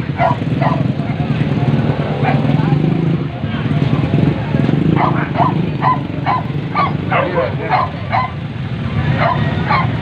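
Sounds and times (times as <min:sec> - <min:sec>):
dogs barking and yelping: 0:00.0 - 0:01.2, 0:02.2 - 0:02.6, 0:04.8 - 0:08.5, 0:09.1 - 0:10.0
motorbike engines running: 0:00.0 - 0:10.0.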